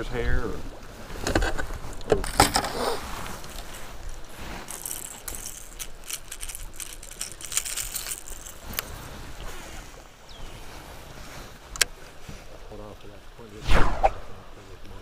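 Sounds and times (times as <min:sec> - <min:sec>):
fishing reel clicks and rattling: 0:04.7 - 0:08.8.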